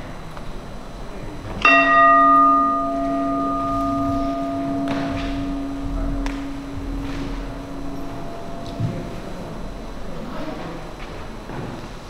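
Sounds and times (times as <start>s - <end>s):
metal bell ringing: 1.6s - 11.3s.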